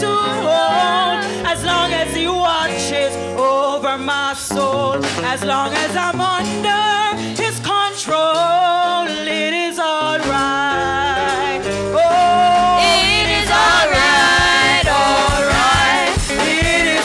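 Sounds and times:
bass guitar: 0.0s - 17.0s
church band playing: 0.0s - 17.0s
girls singing gospel: 0.0s - 17.0s
drum kit hits: 11.2s - 17.0s.

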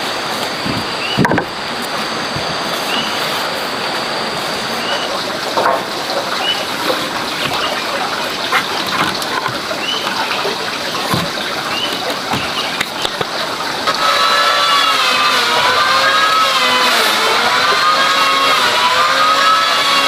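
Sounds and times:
steady rushing background noise: 0.0s - 13.9s
wooden posts knocking dully: 0.5s - 3.2s, 5.5s - 20.0s.

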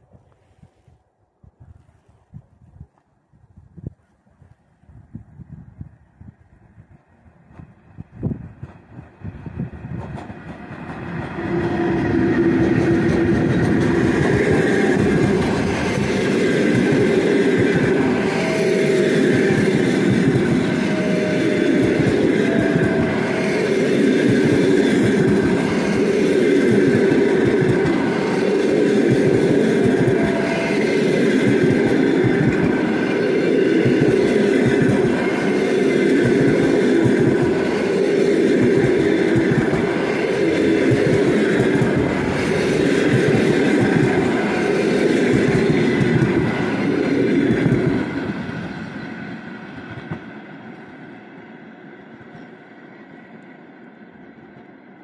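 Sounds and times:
train passing at speed: 0.0s - 3.0s, 4.3s - 55.0s
wheels clattering on rails: 7.5s - 49.0s.

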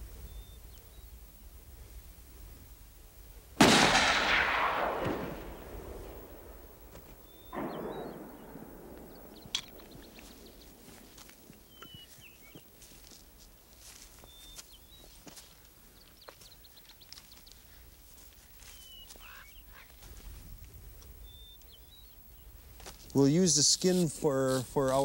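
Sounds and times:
echoing rifle shots: 3.6s - 11.5s.

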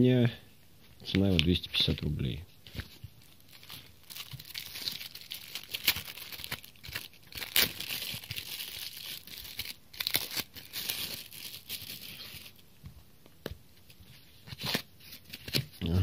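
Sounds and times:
plastic wrapping crinkling and tearing: 2.7s - 12.6s.

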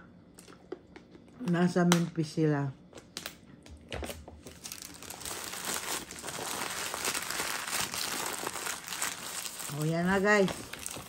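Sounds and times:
paper wrapper crinkling: 4.4s - 11.0s.

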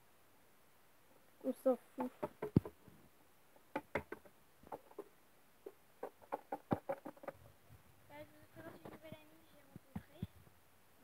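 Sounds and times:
plastic toys tapping on wood: 2.0s - 2.8s, 3.6s - 7.5s.

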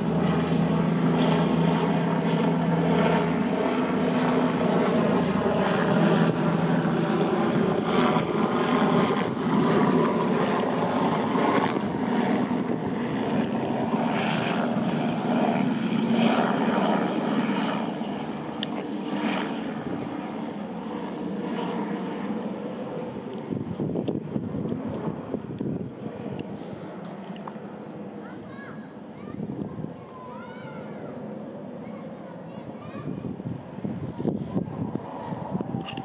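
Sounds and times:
engine drone: 0.0s - 28.2s.

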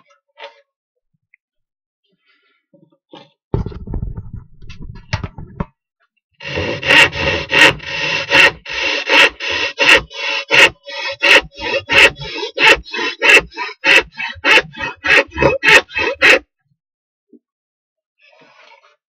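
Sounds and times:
hand saw cutting wood: 6.4s - 16.4s.

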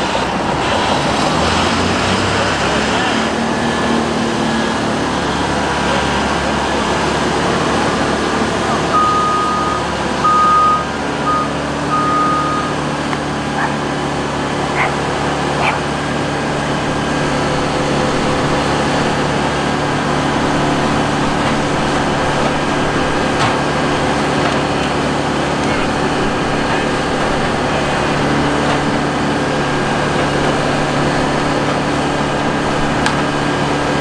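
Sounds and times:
diesel machinery drone: 0.0s - 34.0s
warning beeper: 8.7s - 12.9s.

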